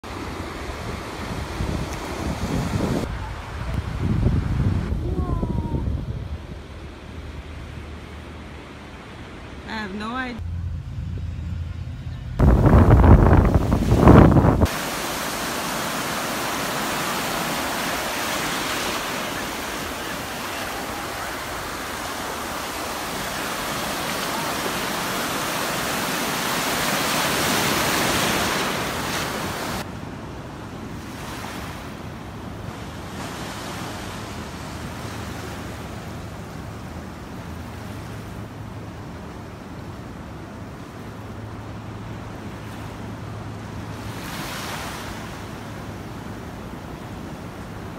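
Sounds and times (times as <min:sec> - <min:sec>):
surf breaking on beach: 0:00.0 - 0:10.3, 0:12.4 - 0:47.9
wind gust on microphone: 0:00.1 - 0:09.7, 0:10.3 - 0:47.9
water lapping at shore: 0:12.4 - 0:47.9.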